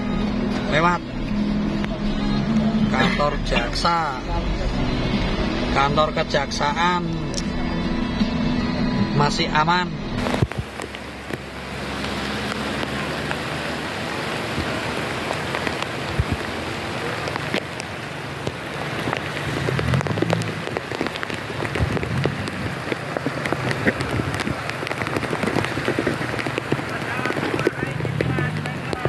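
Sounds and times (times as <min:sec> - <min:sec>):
heavy rain on a car: 0:00.0 - 0:07.7, 0:10.2 - 0:29.0
single raindrop hits: 0:14.2 - 0:29.0.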